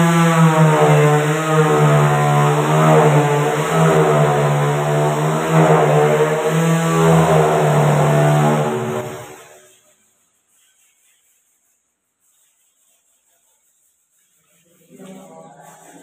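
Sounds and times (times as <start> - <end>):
power tool motor whine: 0.0 - 9.6.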